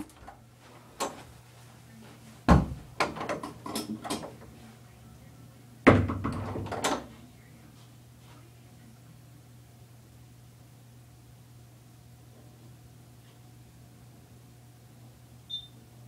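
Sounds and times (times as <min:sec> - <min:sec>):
faint low hum: 0:00.0 - 0:16.0
heavy thumps: 0:02.4 - 0:03.2.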